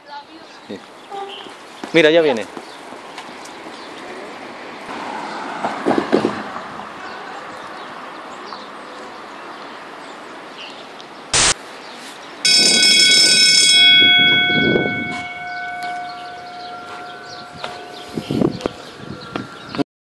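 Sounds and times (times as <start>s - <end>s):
train rumble: 12.5s - 19.5s
train horn chord: 13.8s - 18.9s.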